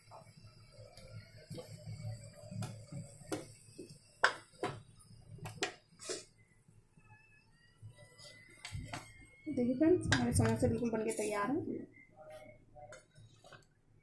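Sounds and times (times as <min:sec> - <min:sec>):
hot oil sizzling: 0:00.0 - 0:06.4, 0:07.8 - 0:11.6.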